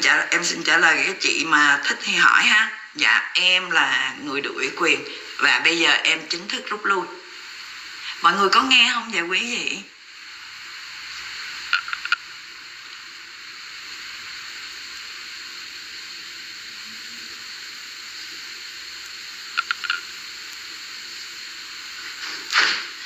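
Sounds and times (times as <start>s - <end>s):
background hiss: 0.0s - 23.0s
short clicks: 11.7s - 12.2s.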